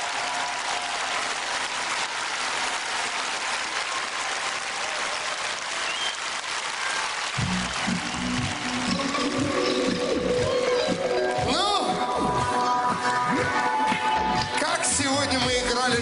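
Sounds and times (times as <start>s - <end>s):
large audience applauding: 0.0s - 11.4s, 13.4s - 14.9s
music with bass line: 7.4s - 16.0s.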